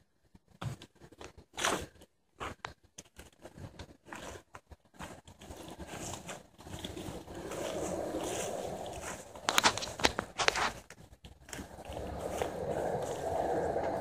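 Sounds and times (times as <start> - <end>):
footsteps on dry grass and leaves: 0.6 - 14.0
rustling hiss: 5.9 - 10.9, 11.5 - 14.0.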